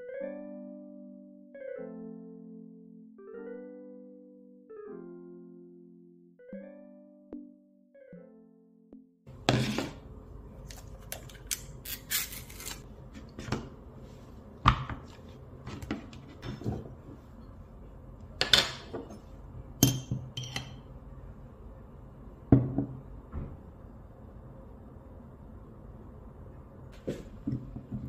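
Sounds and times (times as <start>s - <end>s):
low steady hum: 9.3s - 28.0s
kitchenware clinking on table: 19.8s - 20.8s.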